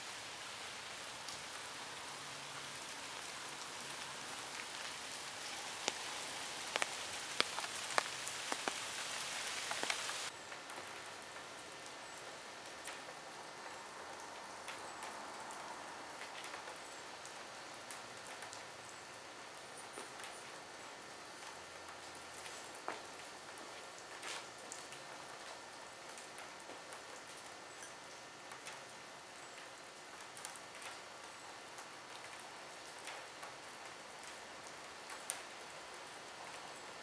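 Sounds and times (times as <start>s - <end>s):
steady rain: 0.0s - 37.0s
sharp drips landing close: 2.6s - 11.5s.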